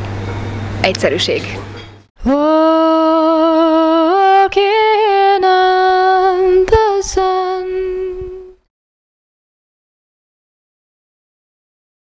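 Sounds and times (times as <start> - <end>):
woman singing unaccompanied: 2.2 - 8.7.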